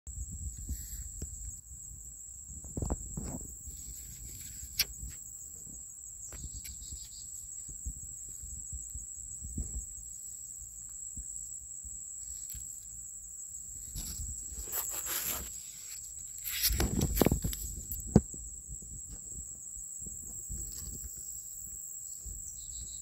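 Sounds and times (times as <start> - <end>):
crickets trilling: 0.1 - 23.0
microphone handling noise: 2.5 - 10.1, 13.8 - 21.3
leaves brushing: 13.7 - 18.1.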